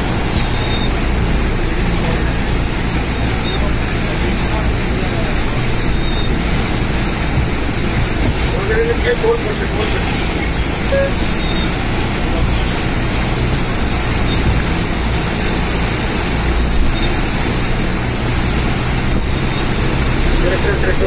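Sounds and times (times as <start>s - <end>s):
heavy rain falling: 0.0s - 21.0s.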